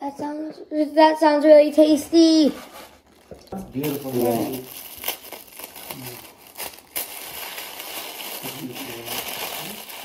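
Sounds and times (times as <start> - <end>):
tissue paper rustling: 2.2 - 10.0.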